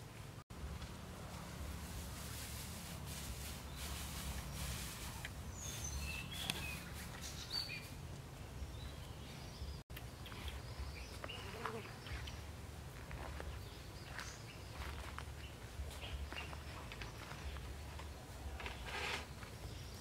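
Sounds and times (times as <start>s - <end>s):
straw and grass rustling: 0.5s - 9.6s, 10.4s - 20.0s
bird chirps: 3.7s - 8.0s, 13.4s - 20.0s.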